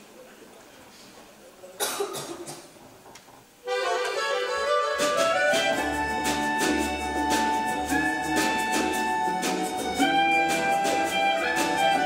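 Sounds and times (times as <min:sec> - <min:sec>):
accordion held notes: 0:03.6 - 0:12.0
double bass: 0:03.7 - 0:12.0
guitars and mandolins strumming: 0:03.7 - 0:12.0.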